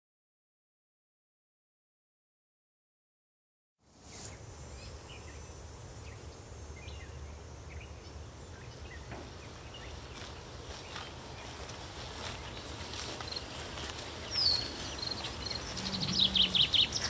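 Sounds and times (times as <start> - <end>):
insects chirring: 4.0 - 17.0
bird chirps: 12.4 - 17.0.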